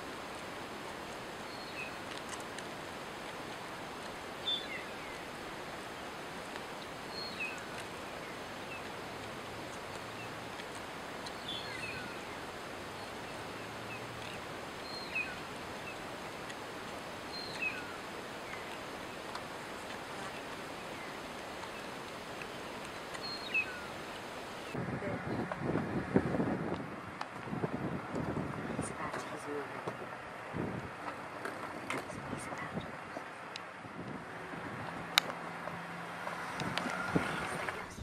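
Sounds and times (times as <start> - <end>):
outdoor background hiss: 0.0 - 38.0
bird chirping: 1.4 - 2.1, 4.4 - 5.3, 5.9 - 9.0, 9.7 - 16.2, 17.2 - 24.8.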